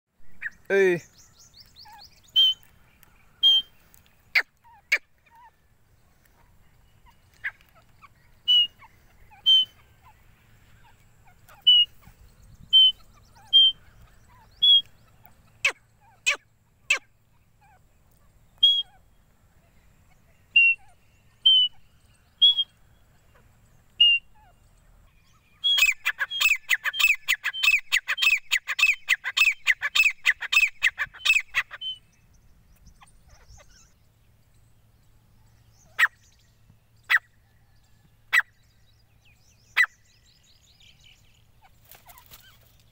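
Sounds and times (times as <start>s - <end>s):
francolin calling: 0.3s - 5.7s, 6.4s - 18.0s, 18.6s - 32.1s.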